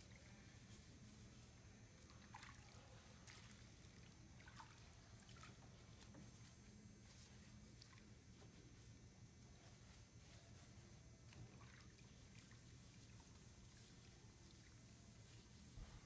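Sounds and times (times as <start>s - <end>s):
low steady hum: 0.0s - 16.0s
water squishing and dribbling: 2.1s - 6.2s, 11.2s - 15.0s
sponge scrubbing metal: 12.6s - 16.0s.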